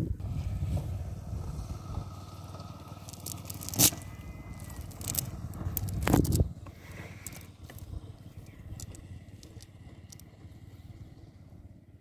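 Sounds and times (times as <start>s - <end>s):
sinkers clicking: 3.0s - 6.4s, 7.2s - 10.3s
net mesh scraping on concrete: 3.0s - 7.8s.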